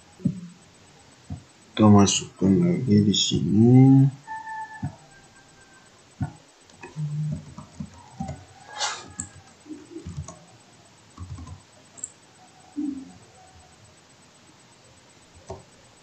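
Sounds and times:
brief hiss: 8.7 - 9.1.

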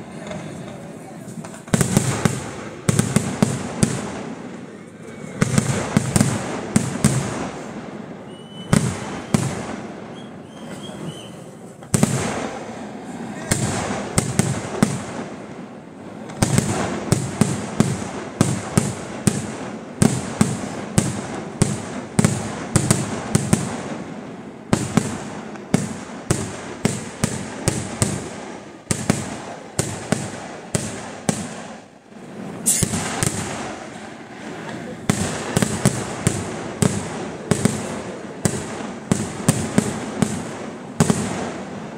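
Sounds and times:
fireworks banging: 0.0 - 41.9.

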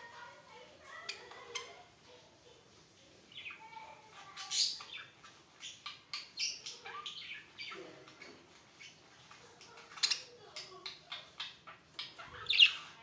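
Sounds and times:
budgerigars chirping: 4.4 - 9.0, 11.0 - 13.0.

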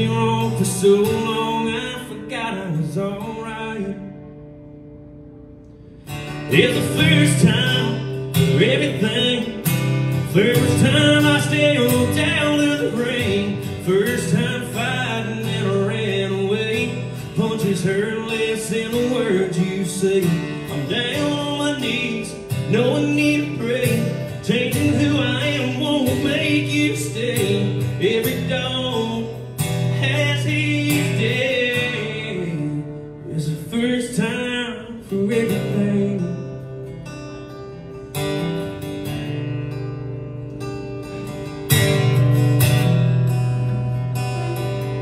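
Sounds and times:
man singing: 0.0 - 4.1, 6.5 - 36.6
strummed acoustic guitar: 0.0 - 45.0.

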